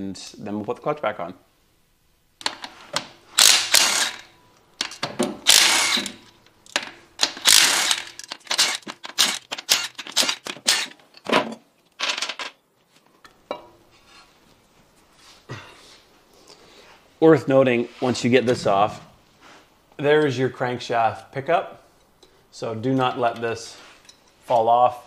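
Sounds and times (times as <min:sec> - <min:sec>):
ratchet wrench clicking: 0:03.4 - 0:10.9.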